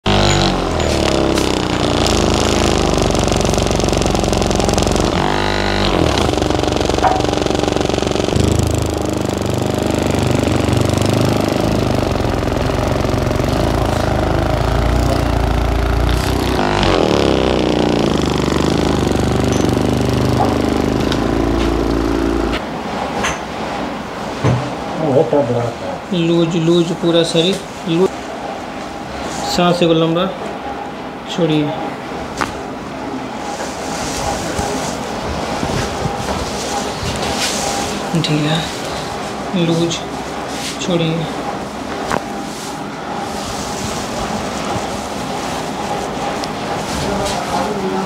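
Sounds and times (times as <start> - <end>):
massage gun motorized buzz: 0.0 - 22.6.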